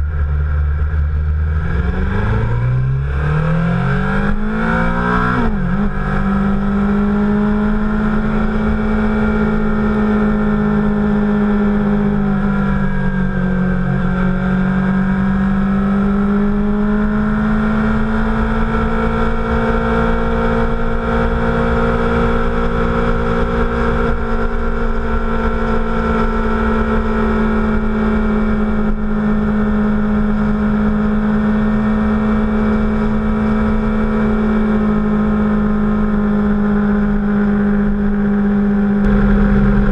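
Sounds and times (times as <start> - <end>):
motorcycle engine running: 0.0 - 39.9
wind noise: 39.0 - 39.9.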